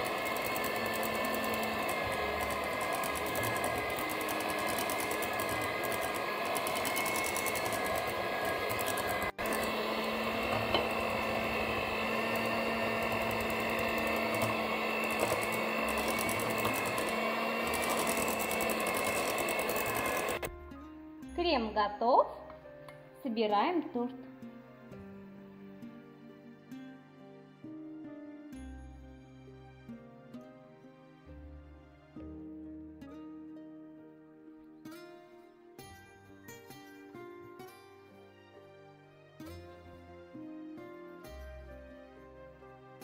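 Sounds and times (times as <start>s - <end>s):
electric hand mixer whipping cream: 0.0s - 20.5s.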